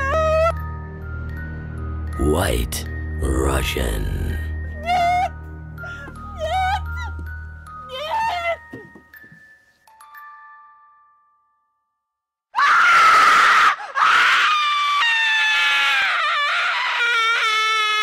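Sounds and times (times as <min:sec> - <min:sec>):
loud high-pitched scream: 0:12.6 - 0:18.0.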